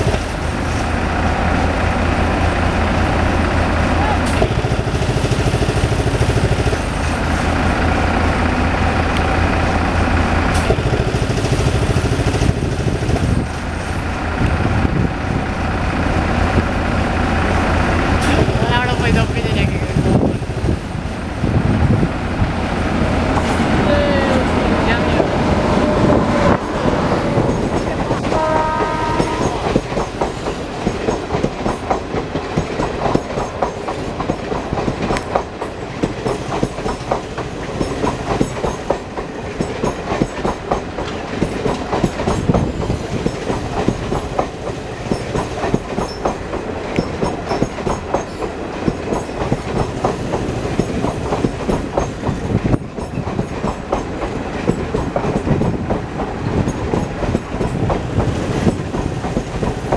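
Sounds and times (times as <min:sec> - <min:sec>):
train coaches rumbling past: 0:00.0 - 0:59.9
wheels clacking over rail joints: 0:00.0 - 0:59.9
short horn note: 0:28.3 - 0:29.6.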